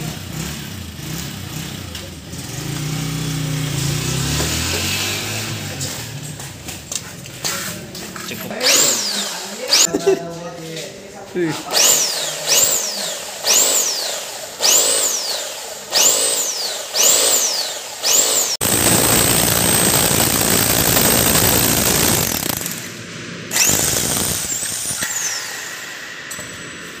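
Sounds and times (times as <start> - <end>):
hammer drill motor whining: 8.2 - 9.9, 11.6 - 22.9, 23.5 - 26.7
drill drilling into concrete: 8.2 - 10.0, 11.6 - 26.8.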